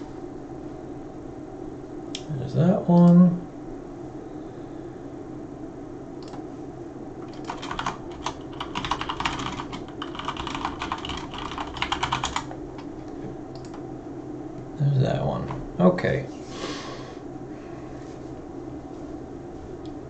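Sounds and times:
faint low hum: 0.0s - 20.0s
keyboard typing: 7.2s - 12.9s.

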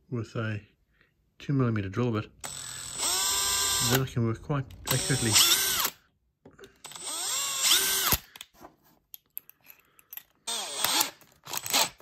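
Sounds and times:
cordless drill running: 2.4s - 4.1s, 4.7s - 6.0s, 6.8s - 8.3s, 10.5s - 12.0s.

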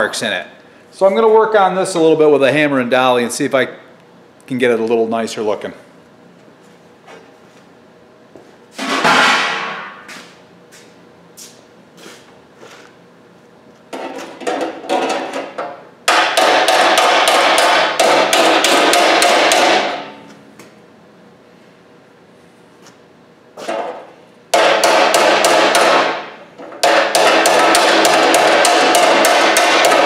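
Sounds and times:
hammer ringing on sheet steel: 24.6s - 30.0s.

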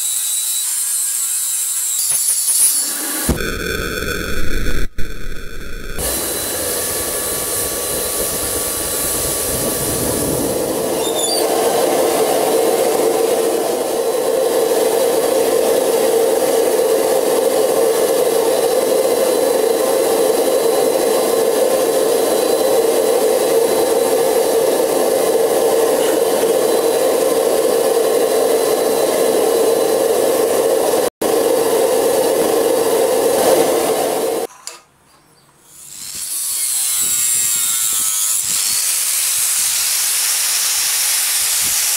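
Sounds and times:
forge burner rushing: 2.8s - 34.5s.

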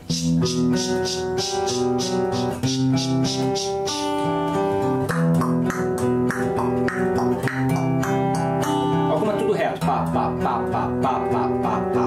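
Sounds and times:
shaker ticking: 0.0s - 4.2s
fingerpicked acoustic guitar: 0.0s - 12.0s.

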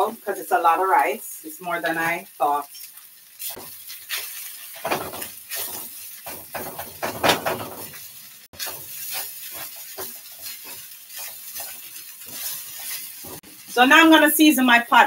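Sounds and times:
rice sizzling in a pan: 0.0s - 15.0s
spoon scraping a pan: 3.4s - 13.7s.

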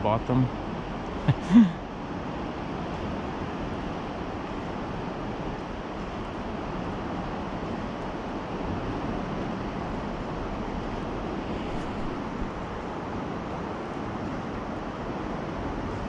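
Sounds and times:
river flowing: 0.0s - 16.0s
wind on microphone: 3.0s - 16.0s.

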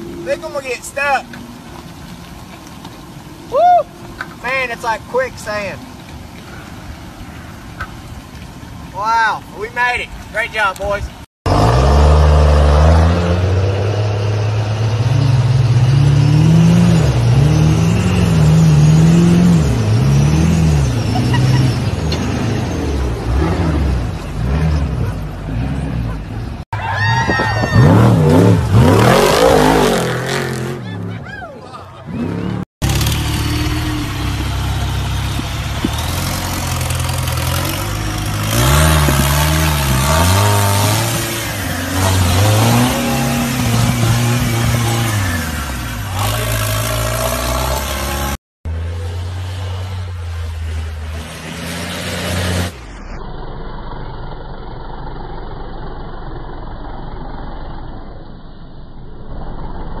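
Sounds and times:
jeep engine revving under load: 11.5s - 26.6s, 27.7s - 31.1s, 32.1s - 48.4s
dull rushing noise: 32.1s - 60.0s
truck diesel engine running hard: 32.3s - 51.2s.

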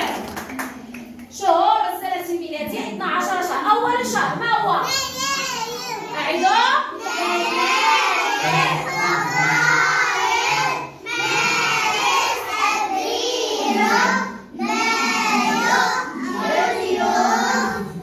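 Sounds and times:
children singing in unison: 6.9s - 18.0s.

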